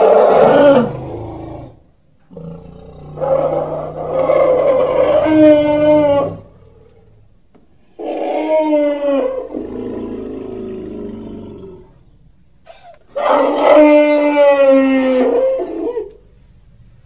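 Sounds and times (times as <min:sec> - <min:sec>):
low rumbling growl: 0:00.4 - 0:07.4.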